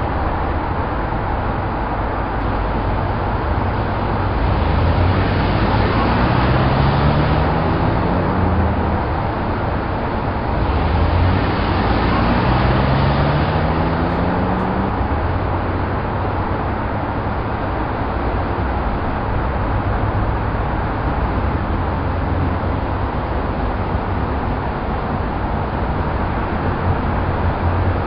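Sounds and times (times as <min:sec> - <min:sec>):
road and cabin noise: 0:00.0 - 0:28.0
car engine accelerating: 0:02.4 - 0:17.5.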